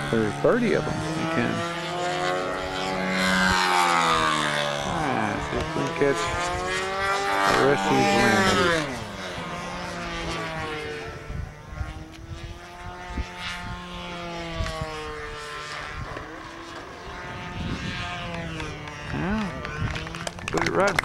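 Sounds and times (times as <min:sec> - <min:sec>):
model airplane engine droning: 0:00.0 - 0:21.0.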